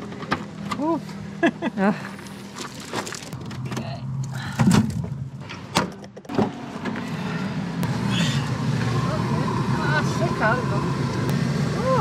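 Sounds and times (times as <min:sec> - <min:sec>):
steady low hum: 0:06.6 - 0:12.0.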